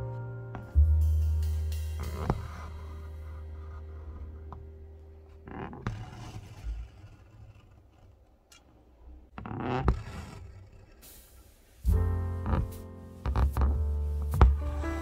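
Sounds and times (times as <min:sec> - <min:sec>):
background music: 0:00.0 - 0:05.5, 0:11.9 - 0:15.0.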